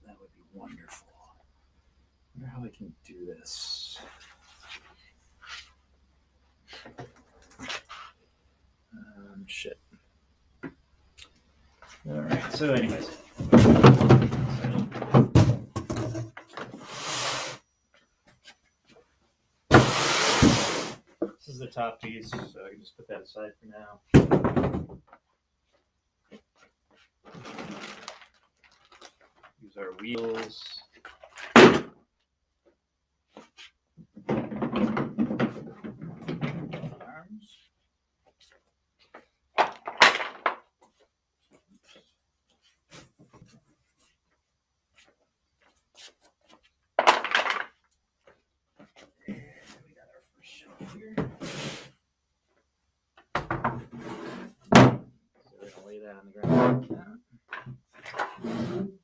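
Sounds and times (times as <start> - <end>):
plastic parts knocking and clattering: 12.3 - 16.8, 24.1 - 25.3, 30.2 - 32.0, 34.0 - 37.1, 39.6 - 40.7, 47.0 - 47.9.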